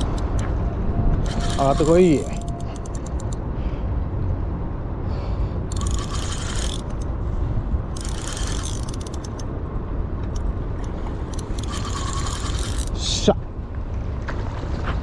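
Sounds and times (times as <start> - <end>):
wind rumble on microphone: 0.0 - 15.0
fishing reel clicking: 1.2 - 3.4, 5.7 - 7.1, 8.0 - 9.5, 11.3 - 13.0.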